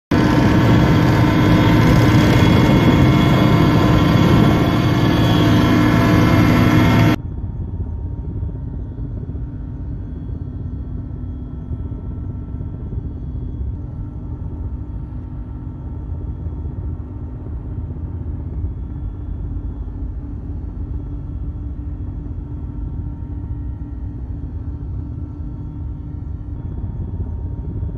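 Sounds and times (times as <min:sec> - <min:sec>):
aircraft cabin drone: 0:00.1 - 0:27.9
helicopter engine and rotor noise: 0:00.1 - 0:27.9.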